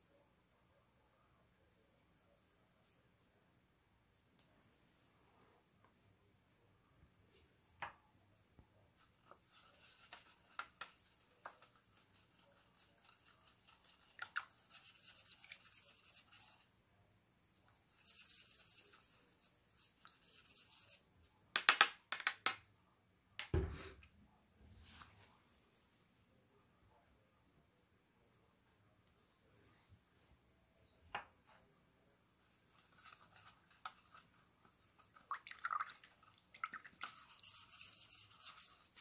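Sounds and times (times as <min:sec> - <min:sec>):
paintbrush scrubbing in water cup: 0:09.2 - 0:16.7, 0:32.4 - 0:39.0.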